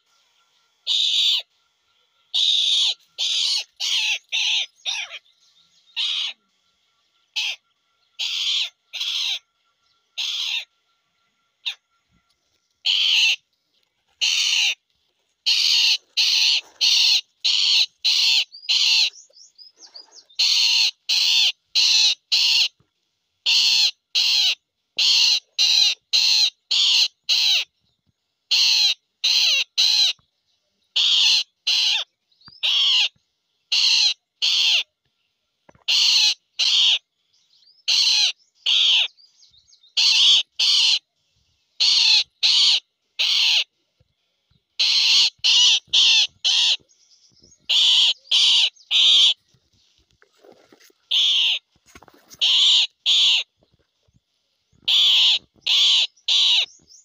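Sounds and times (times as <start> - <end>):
bird giving harsh calls: 0.8 - 1.5, 2.3 - 5.2, 5.9 - 6.4, 7.3 - 7.6, 8.2 - 9.5, 10.2 - 10.7, 12.8 - 13.4, 14.2 - 14.8, 15.4 - 22.8, 23.4 - 27.7, 28.5 - 30.2, 31.0 - 34.9, 35.9 - 37.0, 37.8 - 39.2, 40.0 - 41.0, 41.8 - 43.7, 44.8 - 49.5, 51.0 - 53.5, 54.8 - 57.0.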